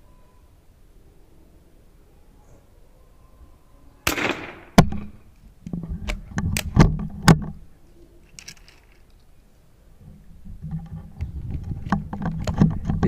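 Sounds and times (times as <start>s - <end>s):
rifle shot: 4.0s - 5.3s
rifle bolt clicks and knocks: 8.2s - 9.3s.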